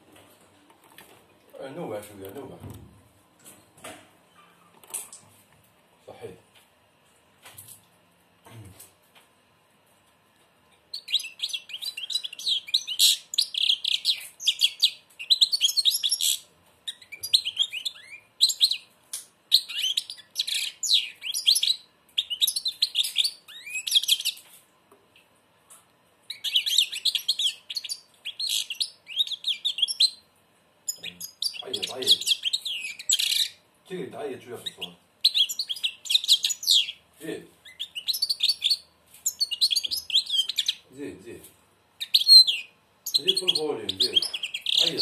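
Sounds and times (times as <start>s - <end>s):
goldfinch twittering song: 37.7s - 40.8s.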